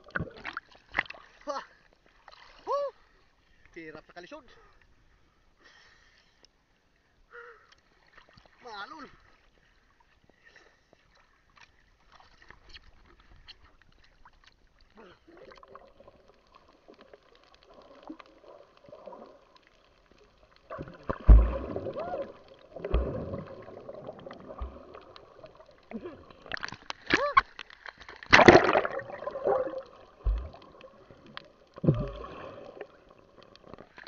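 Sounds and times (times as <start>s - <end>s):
underwater water movement and bubbling: 0.0s - 2.6s, 9.3s - 34.0s
heavy low thumps: 22.8s - 23.5s, 30.2s - 30.6s.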